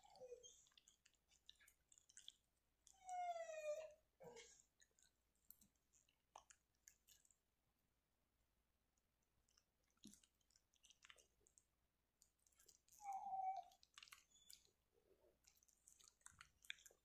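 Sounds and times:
dog whining: 0.0s - 0.7s, 2.8s - 4.5s, 12.9s - 14.7s
dog licking and mouthing: 0.0s - 3.0s, 3.8s - 7.5s, 9.4s - 17.0s.

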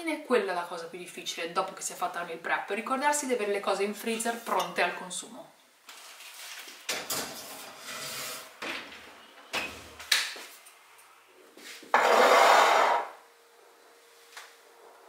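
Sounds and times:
ceramic dishes scraping on wire racks: 7.1s - 8.6s, 11.9s - 13.2s
rough scraping noise: 7.4s - 8.6s, 11.9s - 13.2s.

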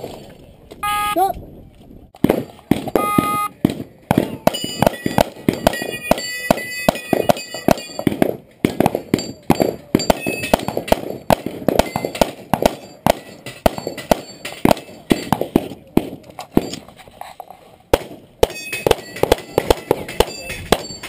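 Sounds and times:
shot timer beep: 0.8s - 1.2s, 3.0s - 3.5s
rapid pistol shots: 2.2s - 16.8s, 17.9s - 21.0s
steel targets ringing: 4.5s - 8.1s, 9.1s - 10.9s, 11.8s - 15.4s, 18.4s - 21.0s.

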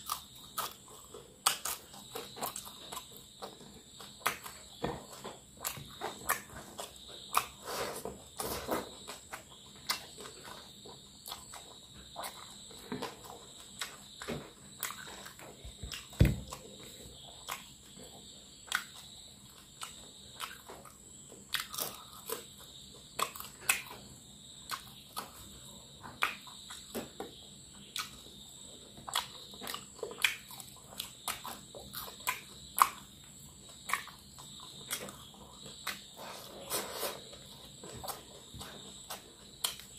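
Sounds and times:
chewing and crunching: 0.0s - 39.9s
dull thump: 15.7s - 16.6s.

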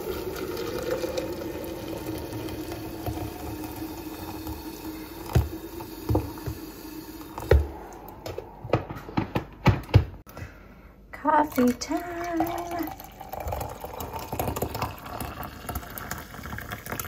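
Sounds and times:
hot water pouring into glass: 0.0s - 7.7s, 11.4s - 17.0s.

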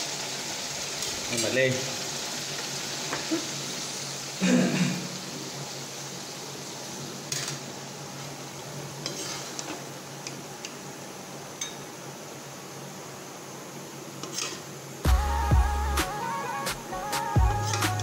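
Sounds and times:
metal spoon clinking and scraping: 9.0s - 9.8s, 14.2s - 14.6s, 17.6s - 18.0s.

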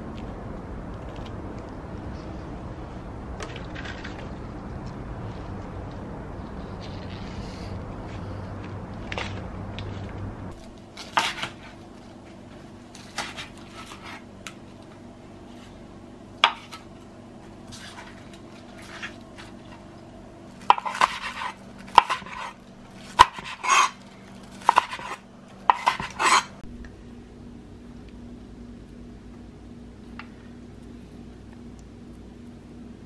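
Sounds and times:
knife chopping on cutting board: 11.0s - 11.7s, 16.4s - 16.8s, 20.6s - 24.0s, 24.6s - 26.5s.

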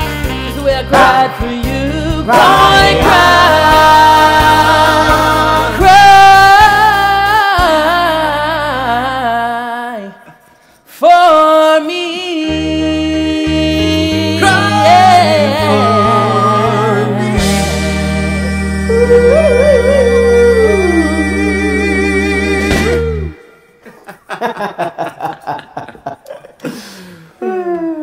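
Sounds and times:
men singing close harmony: 0.8s - 8.2s, 11.9s - 23.4s
low bass line: 12.5s - 23.4s.

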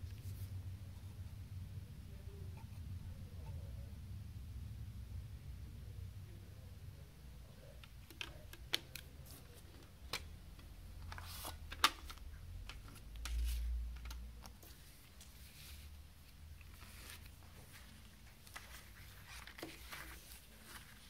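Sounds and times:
paper booklet rustling: 11.0s - 21.0s.

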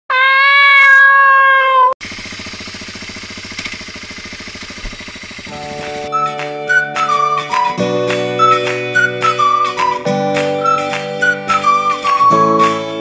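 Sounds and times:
cat meowing: 0.1s - 2.0s
motorcycle engine running: 2.0s - 8.2s
flute-like music: 5.5s - 13.0s.

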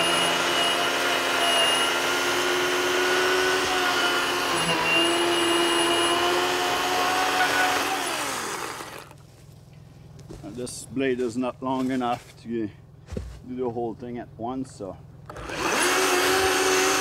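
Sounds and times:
chain rasping through wood: 0.0s - 9.2s
electric chainsaw motor whine: 0.0s - 9.2s, 15.3s - 17.0s.

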